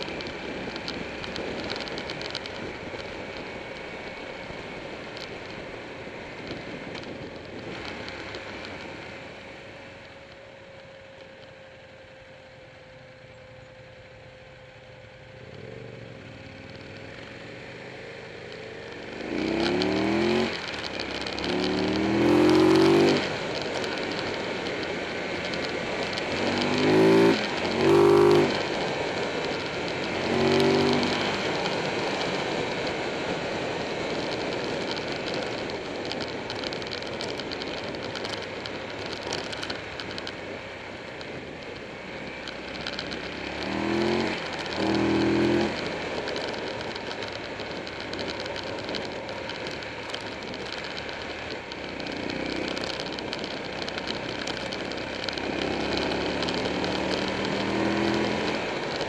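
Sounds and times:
motorcycle engine revving: 0:15.2 - 0:59.0.

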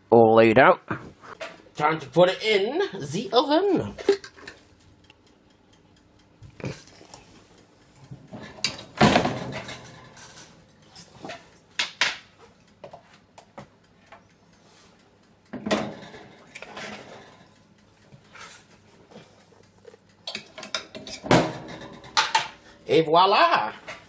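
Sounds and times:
oven tray and door clattering: 0:08.2 - 0:13.0, 0:15.5 - 0:17.6, 0:20.3 - 0:23.1.

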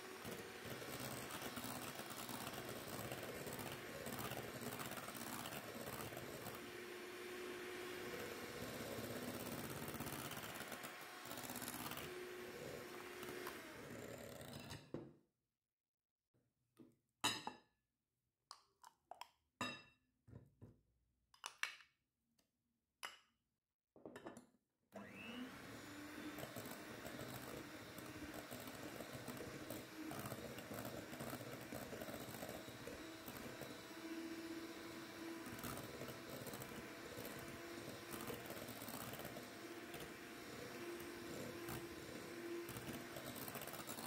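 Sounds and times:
electric hand mixer whirring: 0:00.0 - 0:14.8, 0:25.0 - 0:44.0.

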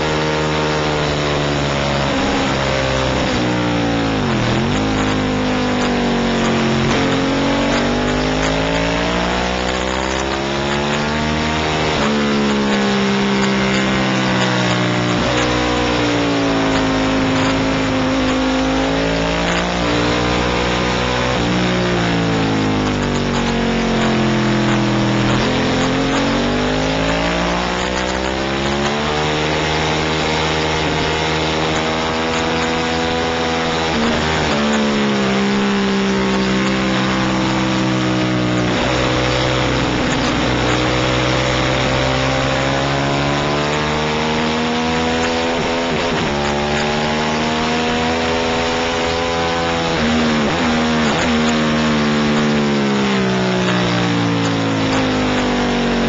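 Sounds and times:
racing motorcycle engine revving: 0:00.0 - 0:56.0.

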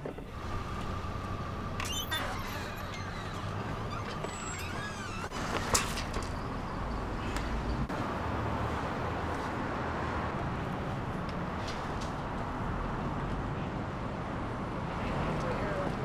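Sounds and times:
rumble of passing vehicles: 0:00.0 - 0:16.0
short squeaks: 0:01.7 - 0:06.9.

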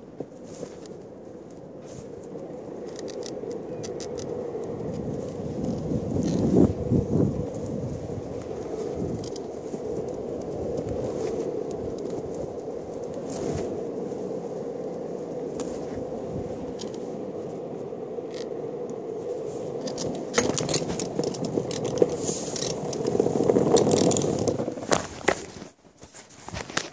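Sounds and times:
longboard wheels rolling on asphalt: 0:00.0 - 0:26.9
clicks and scrapes: 0:19.8 - 0:26.9.

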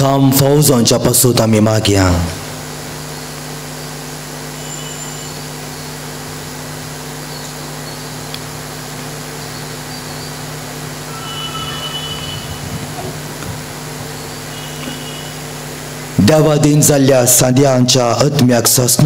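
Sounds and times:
electrical hum with hiss: 0:00.0 - 0:19.0
faint high tones: 0:04.5 - 0:05.5, 0:09.2 - 0:16.0.

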